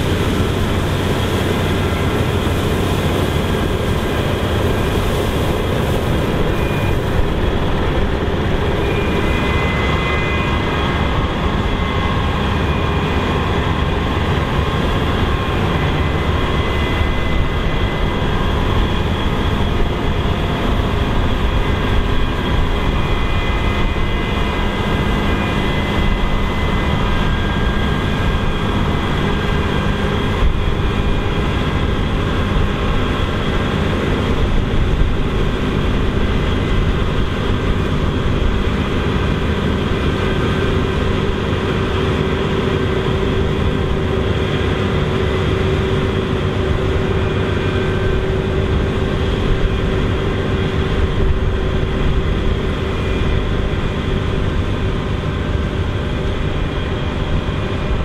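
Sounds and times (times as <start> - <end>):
whining tones: 0.0 - 33.6
combine harvester working: 0.0 - 58.0.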